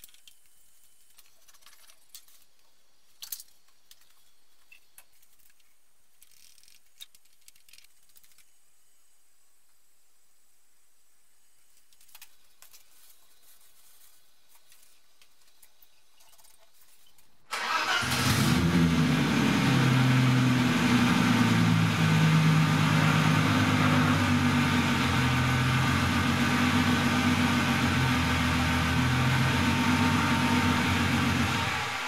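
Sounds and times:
car engine starting and idling: 17.5s - 32.0s.

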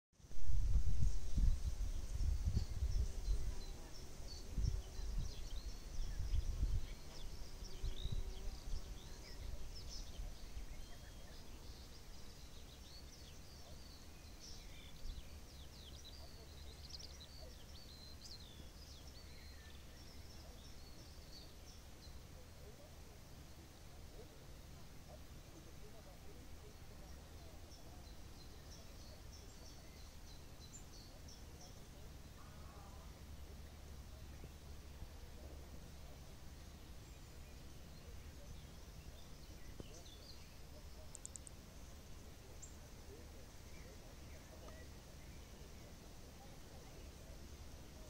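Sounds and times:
wind buffeting microphone: 0.4s - 3.8s, 4.4s - 8.9s
small birds chirping: 0.7s - 48.0s.

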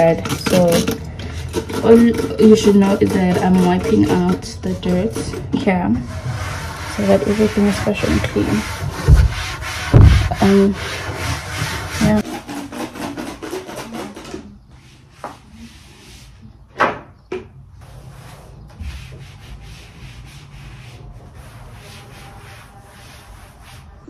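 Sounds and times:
cloth wiping a shelf: 1.9s - 12.3s, 14.7s - 16.6s, 17.8s - 24.0s.

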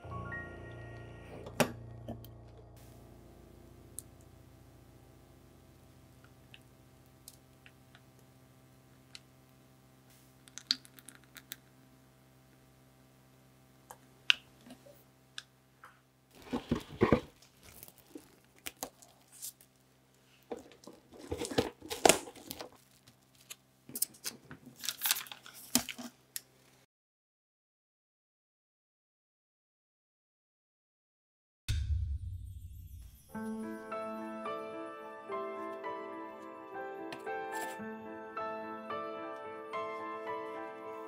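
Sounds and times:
cling film crinkling: 16.3s - 19.8s, 20.6s - 26.1s.

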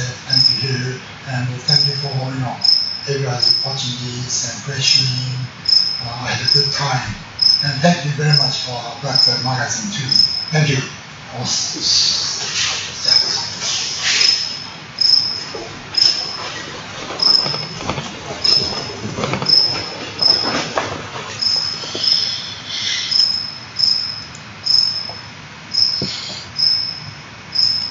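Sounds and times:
faint rustling: 0.0s - 26.7s
cricket chirping: 0.0s - 27.9s.

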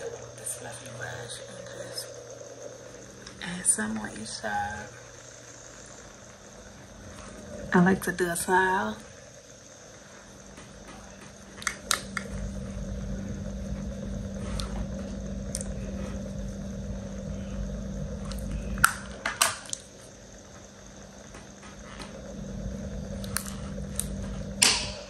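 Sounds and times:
steady low hum: 0.0s - 25.0s
microphone handling rumble: 21.5s - 25.0s.

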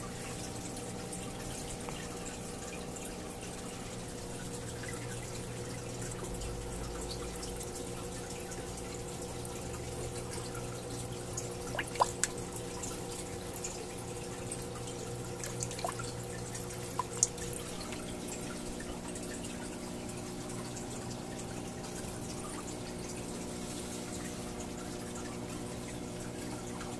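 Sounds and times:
aquarium filter humming: 0.0s - 26.9s
water trickling and dripping: 0.0s - 26.9s
drip plinks: 4.4s - 23.3s.

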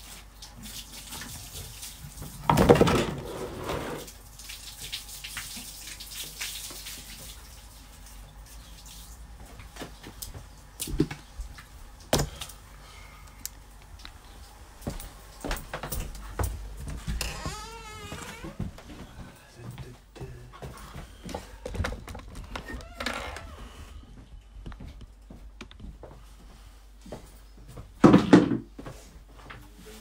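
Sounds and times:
hose water splashing on paving: 0.0s - 2.5s, 3.8s - 9.4s.

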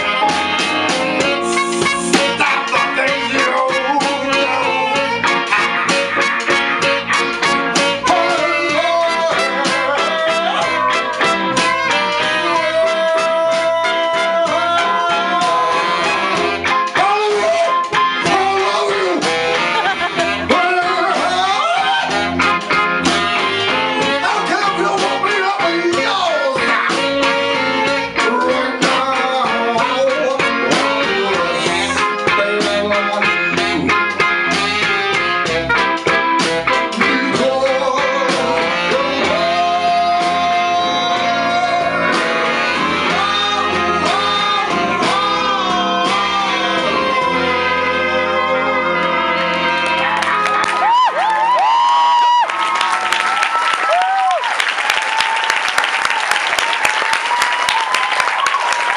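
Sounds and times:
alto saxophone: 0.0s - 24.7s, 26.3s - 51.0s
trumpet: 0.0s - 51.8s
electric guitar: 0.0s - 54.5s
blues band playing: 0.0s - 58.9s
man singing: 1.2s - 5.4s, 7.7s - 22.4s, 23.9s - 34.0s, 36.7s - 49.9s.

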